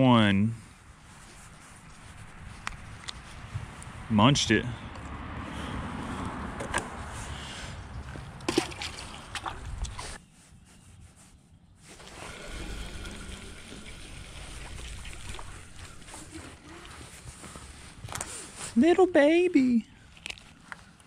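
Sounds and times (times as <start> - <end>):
low steady rumble: 12.0 - 18.2.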